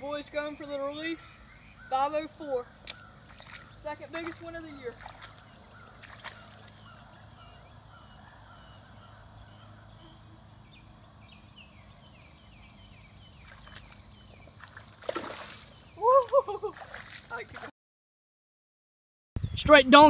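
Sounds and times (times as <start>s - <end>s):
birds chirping: 0.0s - 17.7s
shallow water splashing: 2.9s - 7.2s, 13.4s - 17.7s.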